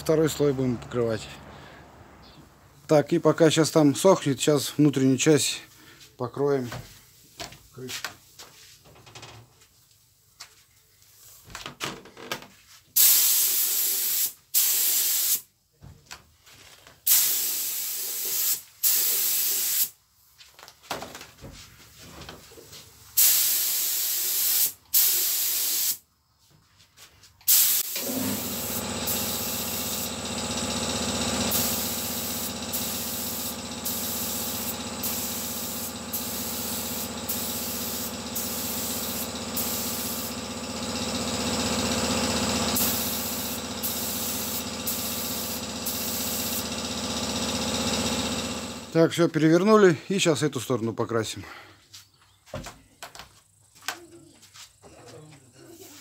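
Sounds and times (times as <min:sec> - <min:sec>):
paint spray gun hissing: 0:13.0 - 0:15.4, 0:17.1 - 0:20.0, 0:23.2 - 0:26.0, 0:27.5 - 0:49.0.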